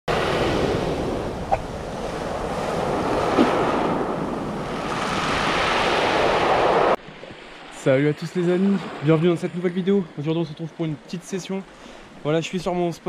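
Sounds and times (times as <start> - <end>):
wind rumbling on microphone: 0.1 - 7.5
waves breaking on pebble beach: 0.1 - 9.2.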